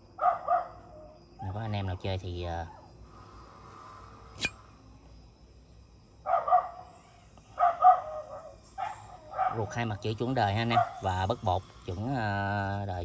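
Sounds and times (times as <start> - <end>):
dog barking: 0.2 - 1.5, 6.2 - 6.8, 7.6 - 10.0, 10.6 - 11.2.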